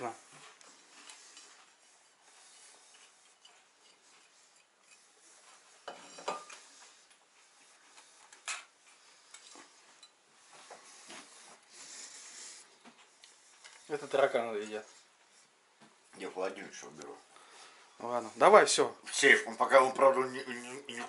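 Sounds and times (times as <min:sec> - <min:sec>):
plates and cutlery scraping: 0:01.1 - 0:06.8
cutlery clinking: 0:05.8 - 0:06.6.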